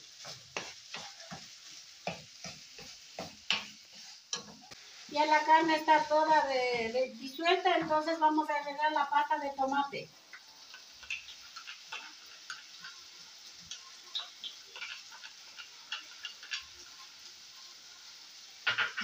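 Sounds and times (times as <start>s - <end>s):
wooden spoon scraping: 0.0s - 5.4s
meat crackling in frying pan: 0.0s - 19.0s.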